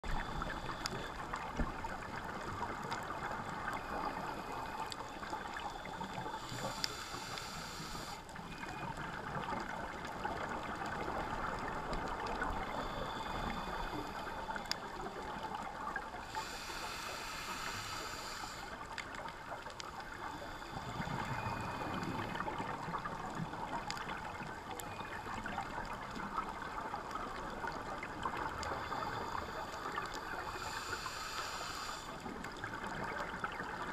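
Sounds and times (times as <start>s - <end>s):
underwater bubbling hiss: 0.0s - 33.9s
regulator breathing: 3.1s - 8.8s, 12.4s - 14.9s, 16.2s - 18.8s, 28.6s - 32.3s.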